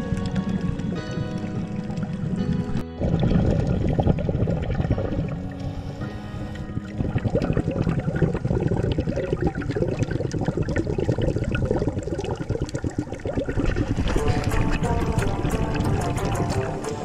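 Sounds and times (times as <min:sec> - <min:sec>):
underwater bubbling and clicks: 0:00.0 - 0:17.0.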